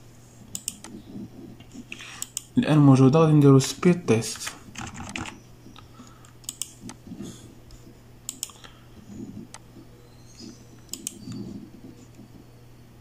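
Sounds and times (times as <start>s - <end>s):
low steady hum: 0.0s - 13.0s
computer mouse clicks: 0.5s - 2.5s, 4.8s - 7.1s, 7.7s - 8.7s, 9.4s - 9.6s, 10.3s - 12.2s.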